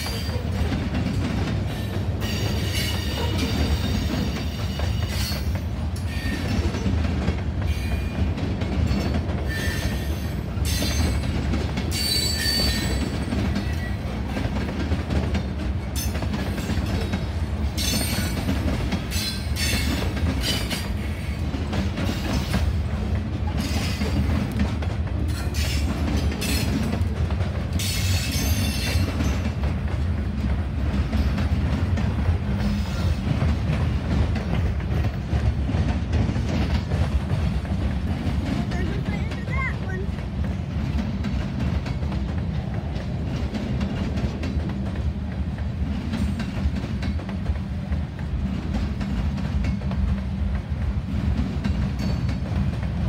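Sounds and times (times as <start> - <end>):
steel wheels squealing: 2.2 - 6.9, 8.9 - 11.2, 11.9 - 14.0, 25.3 - 26.7, 27.8 - 29.4.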